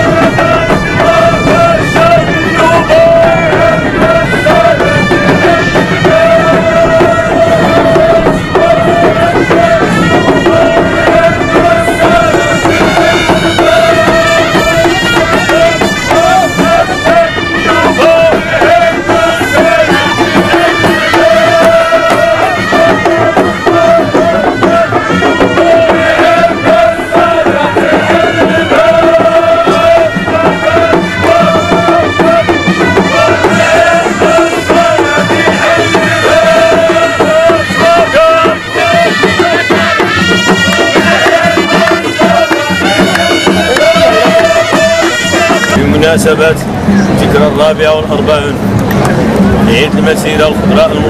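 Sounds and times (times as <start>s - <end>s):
wind instrument wavering high note: 0.0s - 46.0s
hand drums playing: 0.0s - 51.0s.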